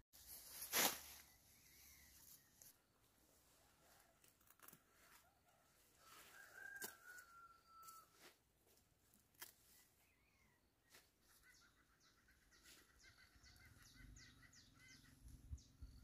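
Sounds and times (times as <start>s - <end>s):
plants rustling: 0.2s - 7.3s
machete stroke: 0.6s - 1.2s.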